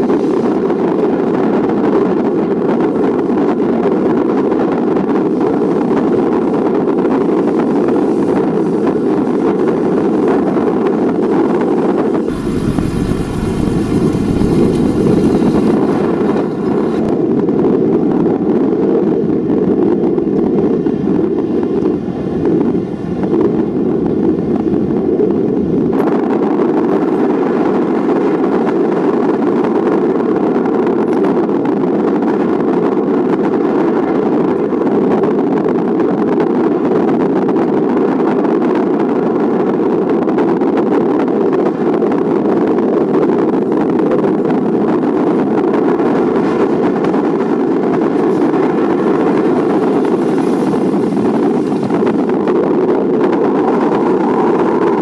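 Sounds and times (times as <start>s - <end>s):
deep rumble: 3.9s - 26.7s, 41.7s - 55.0s
jet engine roar: 5.0s - 17.8s, 43.0s - 55.0s
fan whine: 5.3s - 17.8s, 41.7s - 55.0s.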